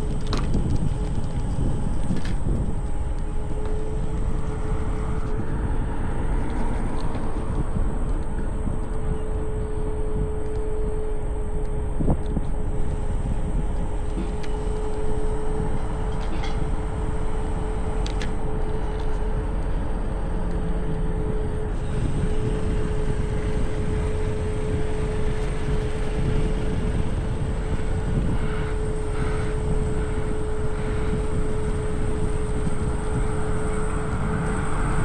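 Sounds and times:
electric scooter motor whine: 0:00.0 - 0:35.0
wind and road noise: 0:00.0 - 0:35.0.

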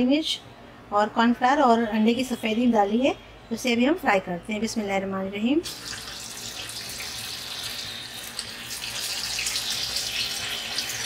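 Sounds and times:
chicken sizzling in hot oil: 0:05.6 - 0:11.0.

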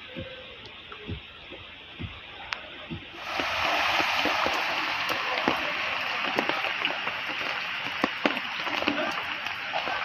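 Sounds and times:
rain and running water: 0:03.2 - 0:10.0
water drops and splashes: 0:03.2 - 0:10.0.

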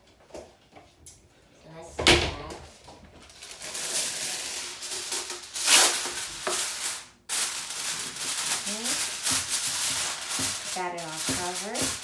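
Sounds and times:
aluminium foil crinkling: 0:03.2 - 0:12.0.

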